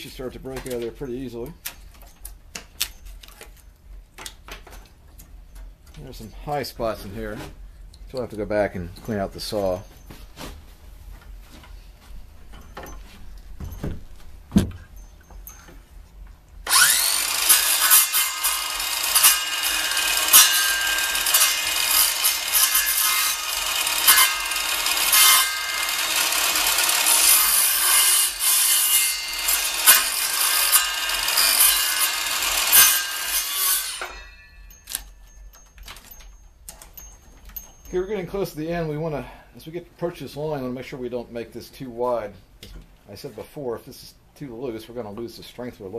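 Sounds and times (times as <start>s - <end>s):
circular saw cutting wood: 16.7s - 35.1s.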